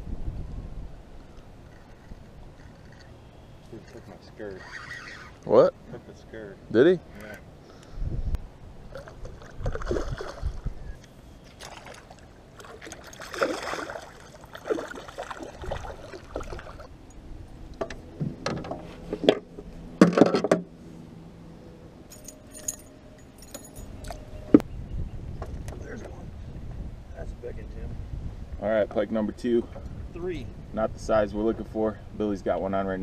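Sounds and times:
fish splashing at water surface: 11.5s - 16.9s
knocks and handling noises: 17.8s - 20.7s
fine metallic jingle: 22.1s - 24.5s.

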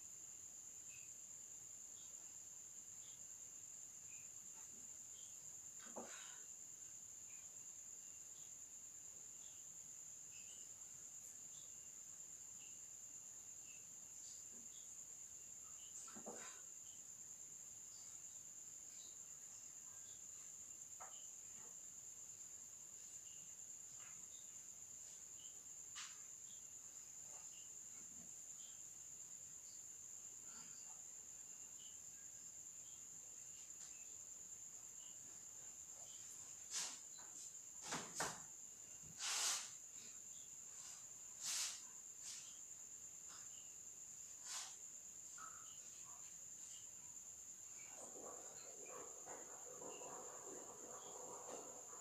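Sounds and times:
crickets trilling: 0.0s - 52.0s.

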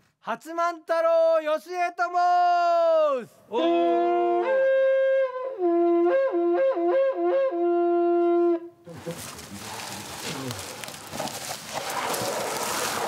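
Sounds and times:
horn blowing two-tone notes: 3.6s - 8.8s.

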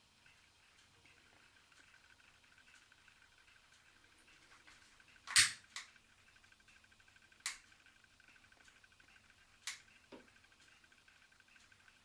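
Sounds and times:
piezo lighter clicking: 5.2s - 5.9s, 7.4s - 7.6s, 9.6s - 9.8s.

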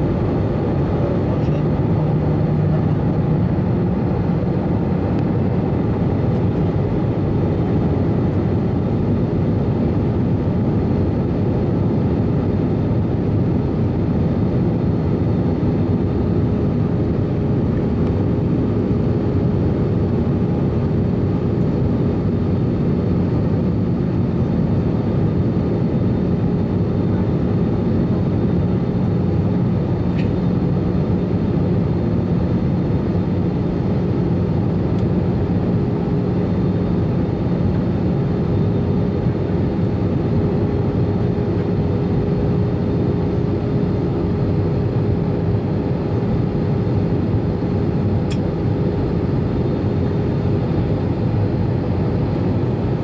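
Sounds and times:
jet engines rumbling: 0.0s - 53.0s.

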